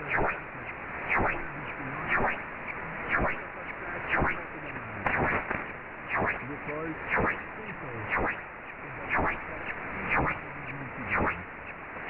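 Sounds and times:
faint radio voice: 0:00.0 - 0:05.5, 0:06.4 - 0:11.6
interference crackle: 0:00.0 - 0:12.0
radio static hiss: 0:00.0 - 0:12.0.

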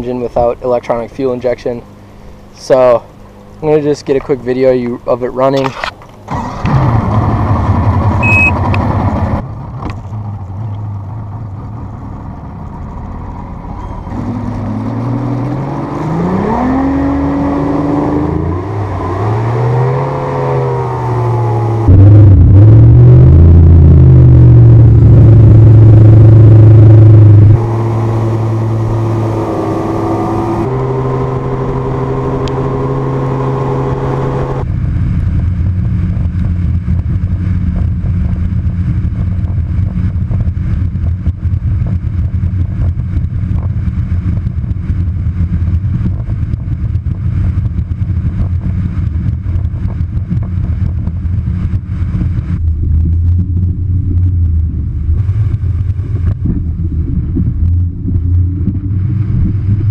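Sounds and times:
outboard motor running: 0:00.4 - 0:10.9, 0:20.3 - 0:34.7, 0:35.4 - 0:59.9
wind noise: 0:15.0 - 0:59.9.

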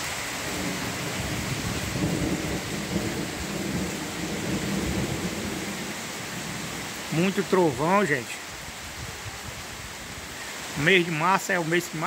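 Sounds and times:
heavy rain on tile roof: 0:00.0 - 0:12.0
thunder rumbling: 0:00.4 - 0:06.9.

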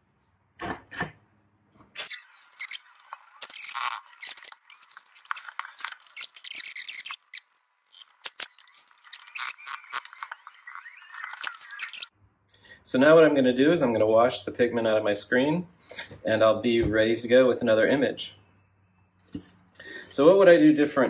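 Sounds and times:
paper rustling and scraping: 0:02.0 - 0:07.4, 0:08.0 - 0:12.1.

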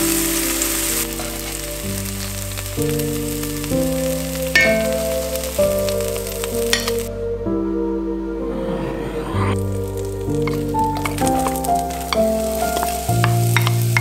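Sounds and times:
tomato slices sizzling in oil: 0:00.0 - 0:07.1, 0:09.8 - 0:14.0
music with slow sustained chords: 0:00.0 - 0:14.0
metal tongs clinking on pan: 0:12.1 - 0:14.0.

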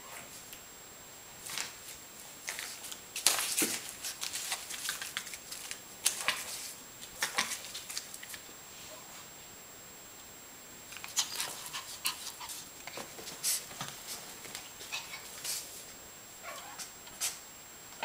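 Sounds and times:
paper rustling and crinkling: 0:01.4 - 0:08.5.

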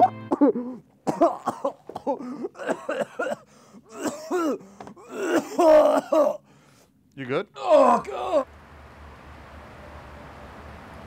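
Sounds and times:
man making strained coughing sounds: 0:00.3 - 0:06.5.

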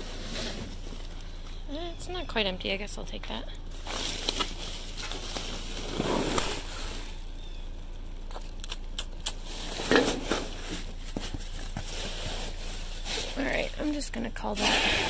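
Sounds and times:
trash rustling in a dumpster: 0:00.0 - 0:01.8, 0:03.6 - 0:07.3, 0:09.5 - 0:15.0.

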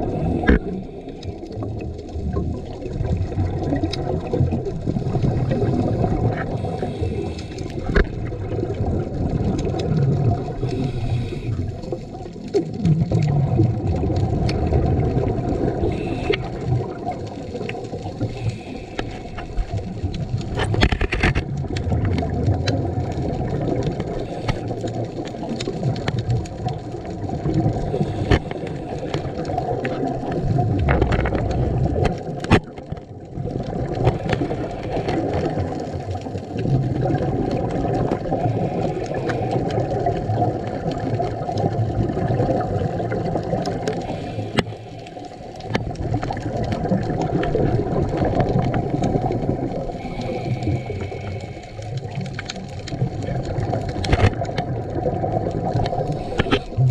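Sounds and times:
diver breathing underwater: 0:00.0 - 0:01.6, 0:04.9 - 0:08.6, 0:10.4 - 0:12.2, 0:15.6 - 0:21.4, 0:23.4 - 0:26.1, 0:27.1 - 0:32.5, 0:33.7 - 0:40.3, 0:42.2 - 0:54.2, 0:55.8 - 0:56.9.

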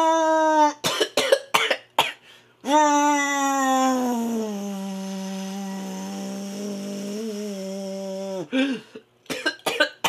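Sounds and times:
man imitating buzzing drone: 0:02.6 - 0:08.8.

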